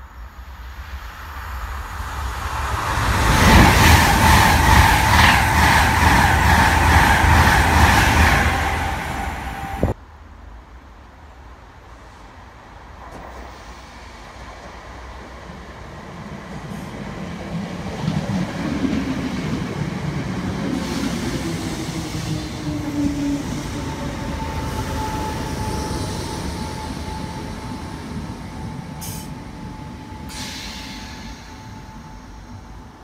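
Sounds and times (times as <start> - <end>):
electric train braking: 7.2 - 10.0, 20.7 - 33.0.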